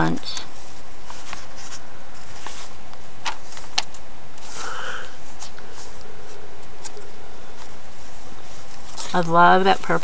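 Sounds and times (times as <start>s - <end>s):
paper pages turning: 0.2s - 10.0s.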